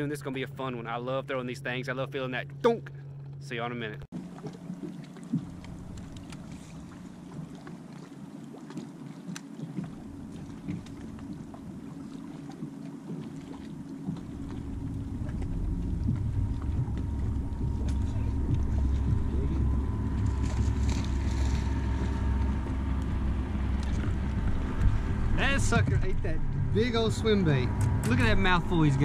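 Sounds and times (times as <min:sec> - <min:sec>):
low hum: 0:00.0 - 0:29.0
water and hull noise: 0:00.0 - 0:29.0
wind rumbling on microphone: 0:09.6 - 0:29.0.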